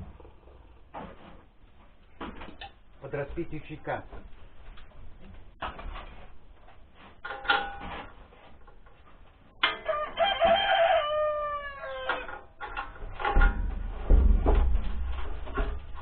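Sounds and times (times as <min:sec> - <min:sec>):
rooster crowing: 0:09.8 - 0:12.4
low thumps and knocks: 0:12.9 - 0:16.0.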